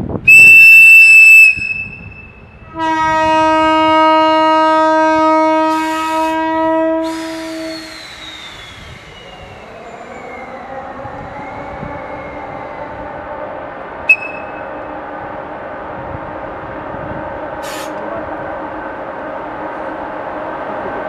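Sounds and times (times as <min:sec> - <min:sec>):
low air horn blast: 0:00.3 - 0:07.9
shrill locomotive whistle: 0:00.3 - 0:10.4, 0:14.1 - 0:14.7
air hissing: 0:07.0 - 0:10.0, 0:17.6 - 0:18.0.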